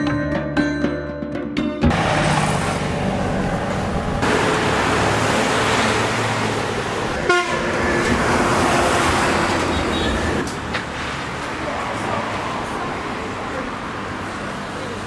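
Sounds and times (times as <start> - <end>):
bus passing close: 1.8 - 15.0
vehicle horn toot: 7.2 - 7.7, 9.7 - 10.4.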